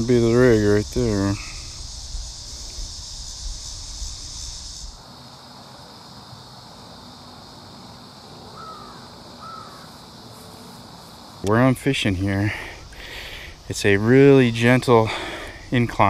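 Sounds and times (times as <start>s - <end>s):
wind rumble on microphone: 0.0s - 5.0s
high-pitched insect chorus: 0.0s - 16.0s
short bird calls: 8.6s - 9.9s.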